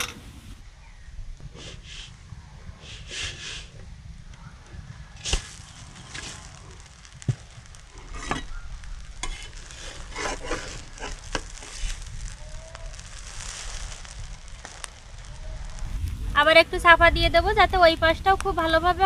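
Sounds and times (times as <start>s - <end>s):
faint sizzle: 1.8s - 19.0s
spatula scraping a pan: 9.2s - 12.3s.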